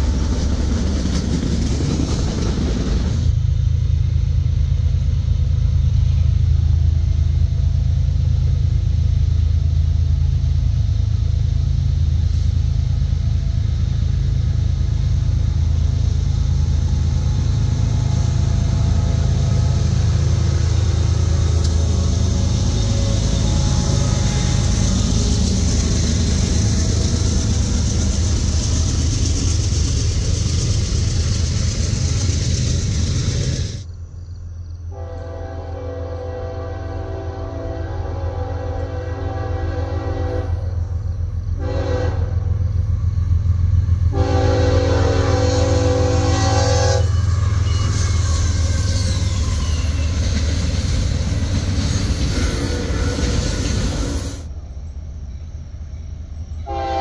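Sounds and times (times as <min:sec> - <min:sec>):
train wheels clattering on rails: 0:00.0 - 0:03.4, 0:16.8 - 0:33.9, 0:45.3 - 0:54.5
diesel engine rumble: 0:00.0 - 0:34.4.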